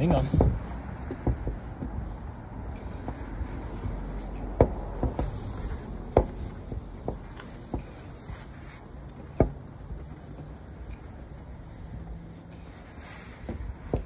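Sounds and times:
knocks and clicks on plastic: 0:00.3 - 0:02.0.

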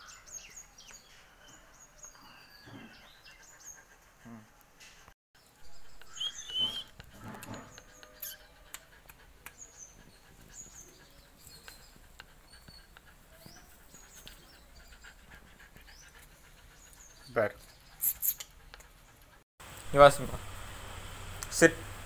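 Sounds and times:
puppy panting: 0:02.0 - 0:19.5
high chirps: 0:06.0 - 0:07.0.

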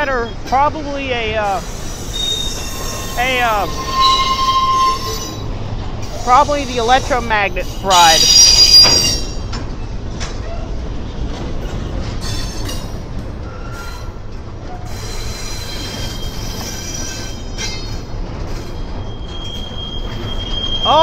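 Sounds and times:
train wheels rumbling on rail: 0:00.0 - 0:21.0
high wheel squeals: 0:01.7 - 0:09.5, 0:14.8 - 0:21.0.

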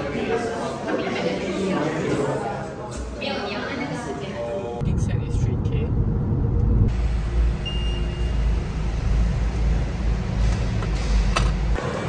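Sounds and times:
faint short beep: 0:07.6 - 0:08.4.

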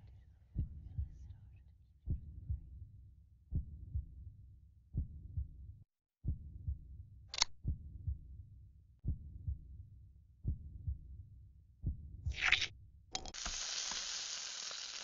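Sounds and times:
heartbeat double thumps: 0:00.6 - 0:01.2, 0:02.1 - 0:02.7, 0:03.5 - 0:04.2, 0:05.0 - 0:05.6, 0:06.2 - 0:06.9, 0:07.6 - 0:08.3, 0:09.0 - 0:09.8, 0:10.4 - 0:11.2, 0:11.8 - 0:12.4
short hiss: 0:13.3 - 0:15.0.

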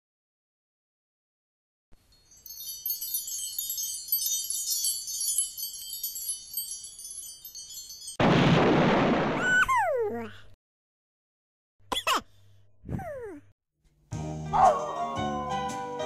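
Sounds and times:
shimmering wind-chime tinkles: 0:02.0 - 0:08.2.

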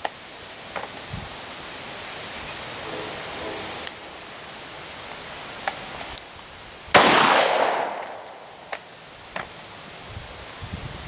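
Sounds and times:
pistol shot: 0:06.9 - 0:08.3
pistol handling clicks: 0:07.0 - 0:09.5.

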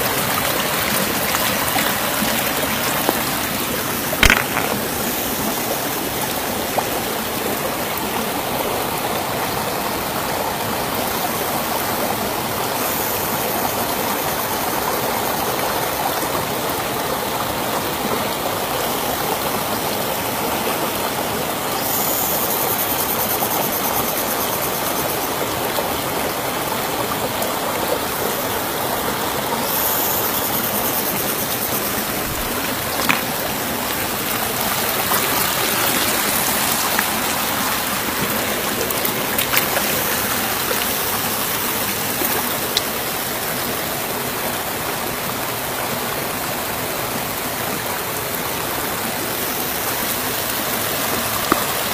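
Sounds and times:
river water flowing: 0:00.0 - 0:51.9
sharp tap: 0:04.2 - 0:04.8.

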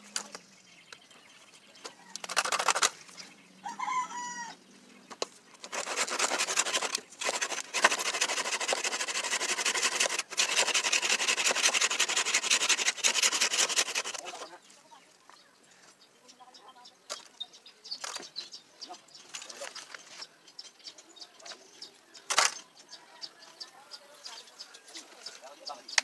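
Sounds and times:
hand saw cutting wood: 0:02.3 - 0:02.9, 0:05.6 - 0:14.5.

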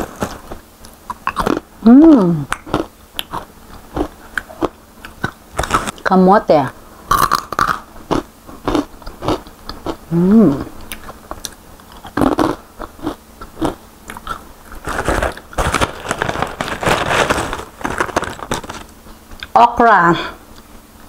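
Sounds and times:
chewing crispy chip: 0:00.0 - 0:06.1, 0:07.1 - 0:19.6
person humming: 0:01.8 - 0:02.6, 0:10.1 - 0:10.8
paper pouch rustling: 0:14.8 - 0:18.9.

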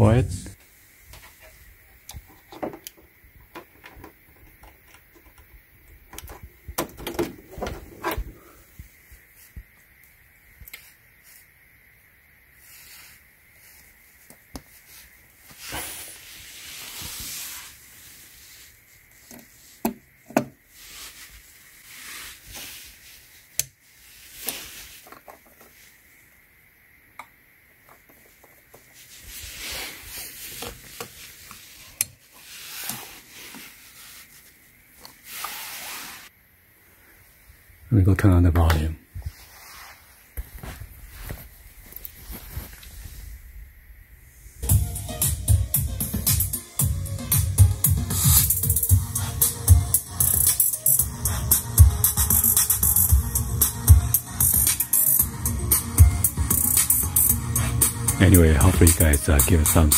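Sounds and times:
rustling: 0:12.5 - 0:26.3, 0:27.8 - 0:37.7, 0:38.8 - 0:44.7
brief hissing rubs: 0:12.6 - 0:13.9, 0:14.7 - 0:19.8, 0:20.7 - 0:25.9, 0:28.9 - 0:36.3, 0:39.2 - 0:43.5, 0:48.0 - 0:49.3.

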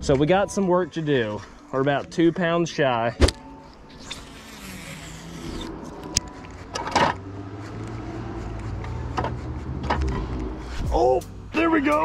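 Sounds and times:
brief scrapes: 0:03.9 - 0:06.6
fishing reel cranking: 0:04.0 - 0:05.8.

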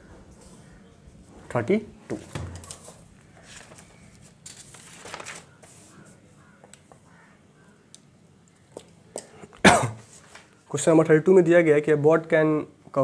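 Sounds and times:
paper rustling: 0:02.3 - 0:06.9.

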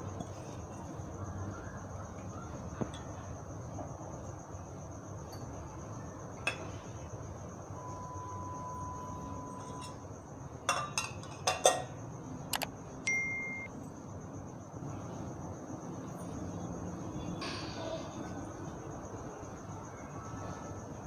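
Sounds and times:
sharp clinks: 0:12.5 - 0:13.7.

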